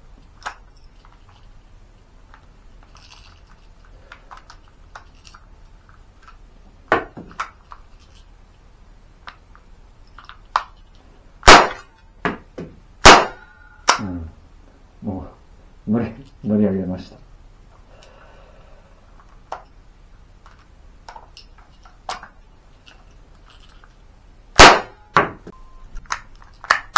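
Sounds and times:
cap gun shots: 11.4 - 11.9, 13.0 - 14.2, 24.6 - 25.4
toy gun handling clicks: 26.0 - 26.9.

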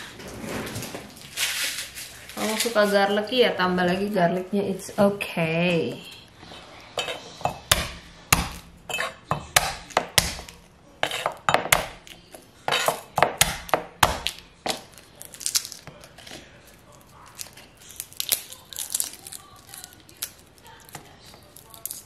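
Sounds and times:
crackling of garlic skins peeled: 1.1 - 3.4, 9.6 - 22.0
knife smashing garlic on wooden board: 7.0 - 14.9.

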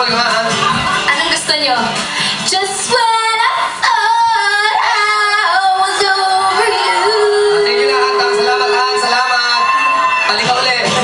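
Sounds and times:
woman singing: 2.4 - 8.8.

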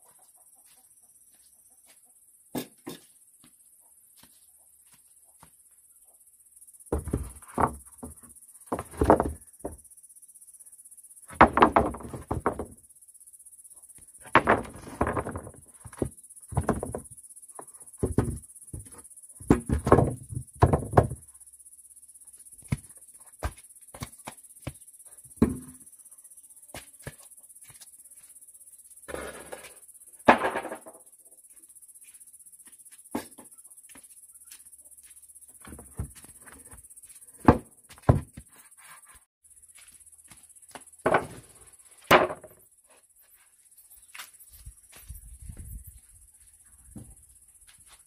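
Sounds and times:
objects knocking and thudding: 6.9 - 9.9, 11.3 - 12.8, 14.2 - 21.3, 22.6 - 25.8, 29.1 - 31.1, 35.6 - 38.6, 41.0 - 42.6.

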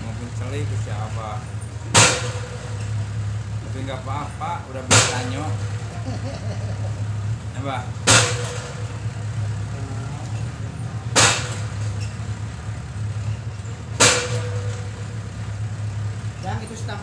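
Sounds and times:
steady low hum: 0.0 - 17.0
sharp knock: 1.9 - 3.0, 4.9 - 5.8, 8.0 - 9.1, 11.1 - 12.2, 14.0 - 15.2.

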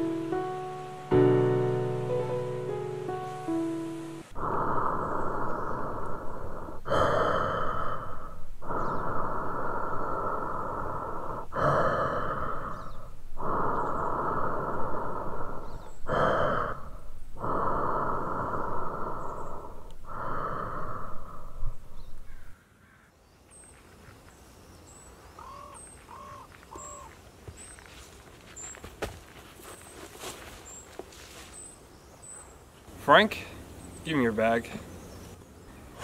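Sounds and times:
person breathing heavily: 4.2 - 22.5
faint bird chirps: 21.6 - 27.9.

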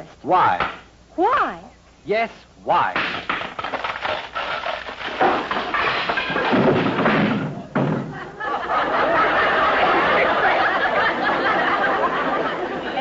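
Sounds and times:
wooden knocks: 2.9 - 8.3
timbers crashing down: 2.9 - 8.4.

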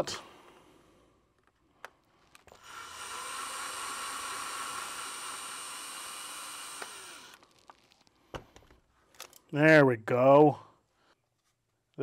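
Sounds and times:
cordless drill motor whine: 2.4 - 7.4.

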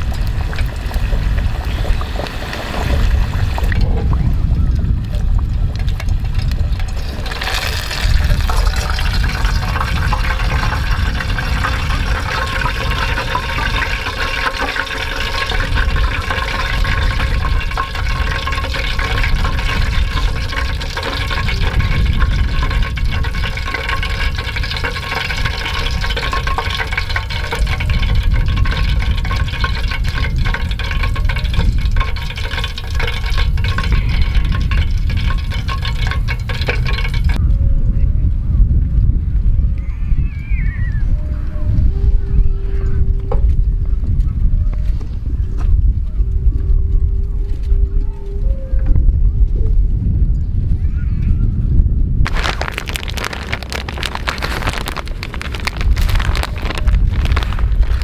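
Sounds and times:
oil sizzling and crackling: 0.0 - 37.4, 52.3 - 58.0
low rumble: 0.0 - 58.0.

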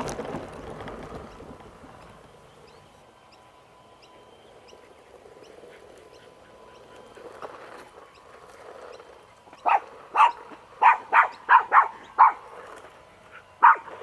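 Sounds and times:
small dog barking: 9.6 - 12.5, 13.6 - 14.0.

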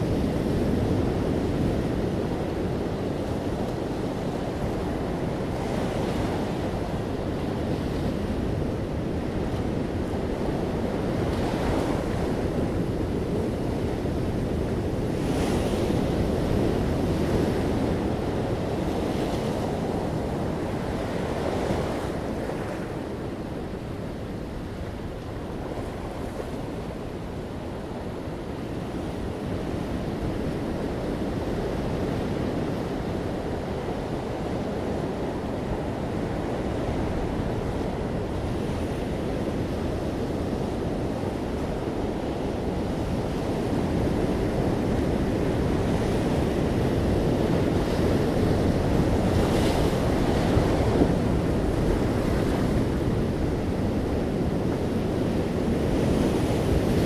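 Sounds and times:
ocean surf breaking on beach: 0.0 - 57.0.

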